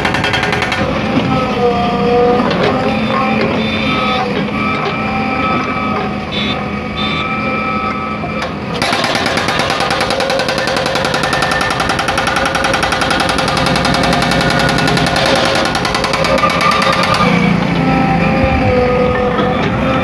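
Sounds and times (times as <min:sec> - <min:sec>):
hydraulic breaker pounding concrete: 0:00.0 - 0:01.6, 0:08.4 - 0:17.8
machine hum: 0:00.0 - 0:20.0.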